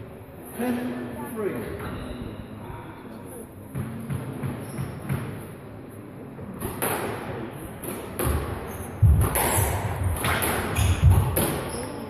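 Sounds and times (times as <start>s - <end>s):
squash racket hits: 6.6s - 11.9s.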